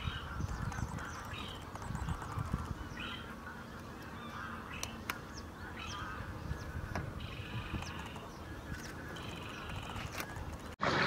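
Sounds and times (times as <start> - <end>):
waterbirds calling: 0.0 - 11.0
sharp clicks: 0.4 - 2.8.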